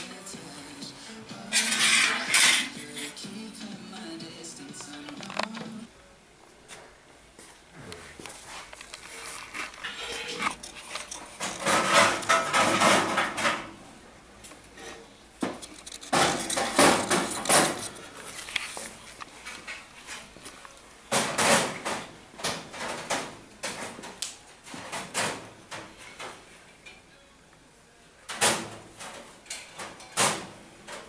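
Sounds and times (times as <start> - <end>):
sheet steel scraping and clanking: 1.5 - 3.2, 9.1 - 13.8, 14.8 - 18.0.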